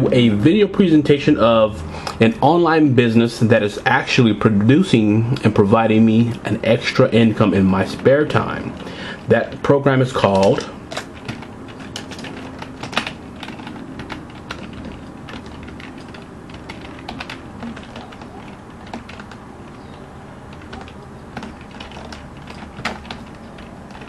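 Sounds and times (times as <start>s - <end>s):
keyboard keystrokes clicking: 10.2s - 24.0s.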